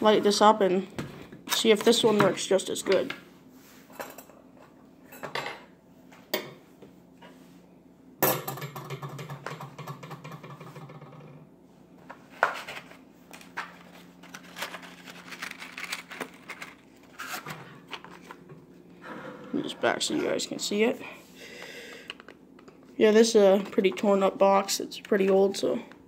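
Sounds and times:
metal items clinking and rattling: 14.2 - 17.5.

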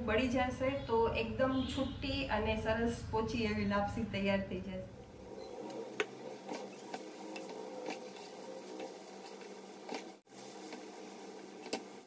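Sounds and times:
spatula scraping a pan: 5.2 - 11.8
food crackling in ghee: 5.2 - 12.0.

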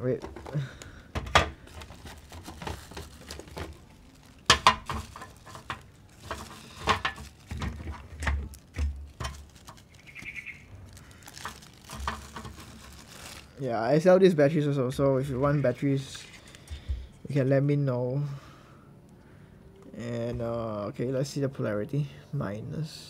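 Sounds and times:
plastic bag rustling: 0.0 - 13.7.

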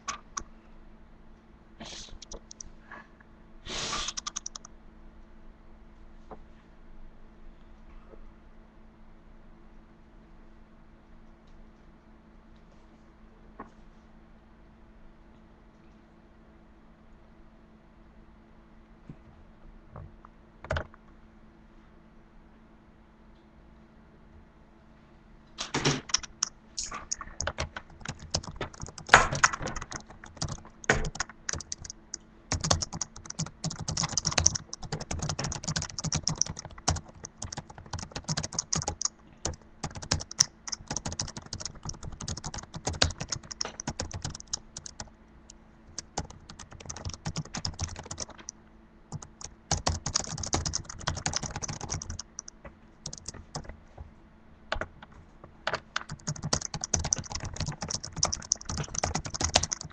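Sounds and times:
typing on laptop keyboard: 2.2 - 2.7, 4.1 - 4.7, 20.6 - 21.0, 26.0 - 45.1, 45.9 - 48.5, 49.1 - 53.8, 55.7 - 59.9.

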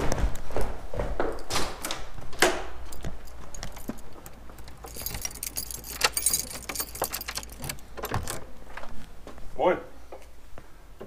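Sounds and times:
metal keys jangling: 2.8 - 8.5.

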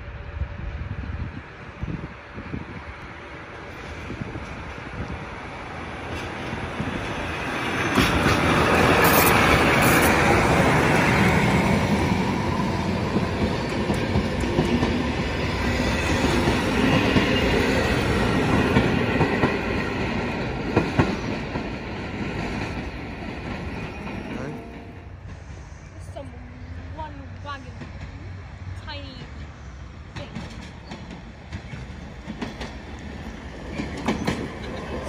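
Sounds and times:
passenger train passing: 0.0 - 35.0
train wheels clattering over rail joints: 6.1 - 24.5, 30.1 - 35.0.

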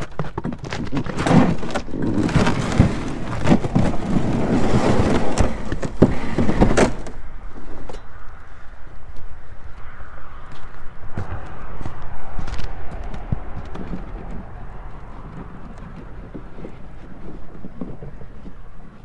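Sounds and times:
canoe hull scraping on ice: 0.0 - 7.9, 12.9 - 19.0.

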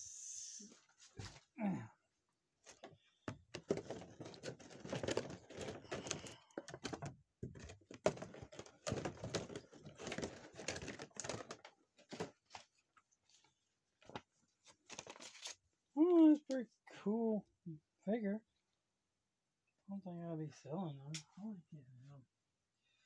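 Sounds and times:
small objects clicking and rustling: 2.8 - 12.7.

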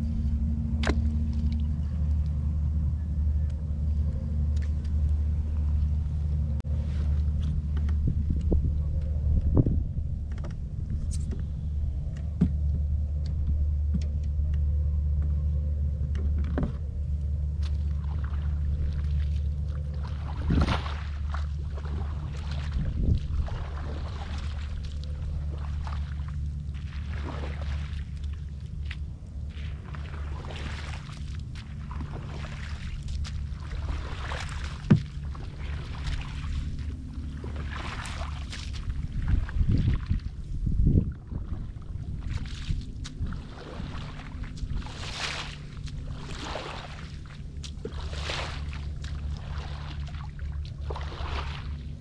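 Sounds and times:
steady low rumble: 0.0 - 52.0
paddle strokes splashing water: 3.8 - 14.4, 16.2 - 52.0
wind buffeting microphone: 4.4 - 14.2, 20.0 - 51.8
light clicks and taps: 7.4 - 15.4.

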